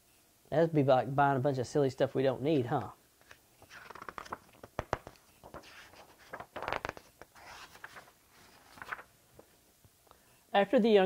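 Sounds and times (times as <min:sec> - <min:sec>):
book pages rustling and turning: 0:02.7 - 0:09.6.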